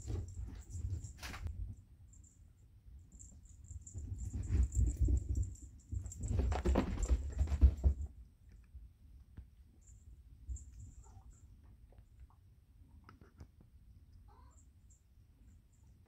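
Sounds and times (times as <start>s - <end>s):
cat paws scrabbling on carpet: 3.9s - 8.1s.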